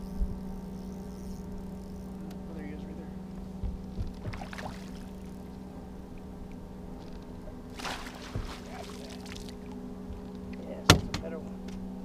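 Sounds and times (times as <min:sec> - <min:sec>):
steady electric hum: 0:00.0 - 0:12.0
landing net splash: 0:04.2 - 0:05.1, 0:07.7 - 0:09.6.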